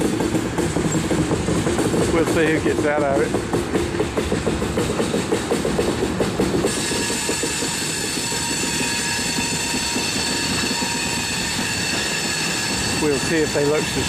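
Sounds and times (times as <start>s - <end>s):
train cars clacking over rail joints: 0.0s - 14.0s
train rumble: 0.0s - 14.0s
high-pitched wheel squeal: 6.7s - 14.0s.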